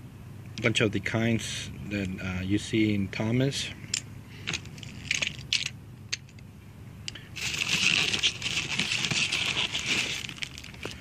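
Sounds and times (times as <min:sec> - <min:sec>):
plastic mailer crinkling: 0:07.4 - 0:11.0.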